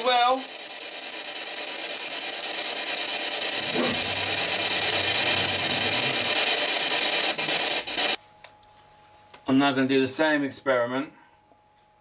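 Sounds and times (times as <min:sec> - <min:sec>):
pitched radio sound: 0:00.0 - 0:08.2
radio static hiss: 0:00.0 - 0:08.2.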